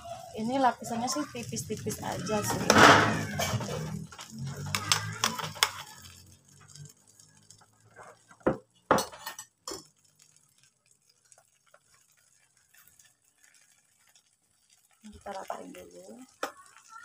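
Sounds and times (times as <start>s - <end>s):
batter pouring: 0.0s - 17.0s
spoon and bowl clinking on metal pan: 8.4s - 10.0s.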